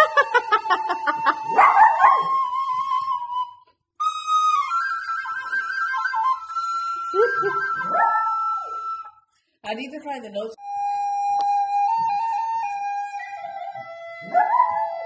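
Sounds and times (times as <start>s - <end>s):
recorder playing: 0.0s - 9.3s, 10.6s - 15.0s
dog yipping and howling: 1.5s - 2.6s, 7.2s - 9.0s, 14.2s - 15.0s.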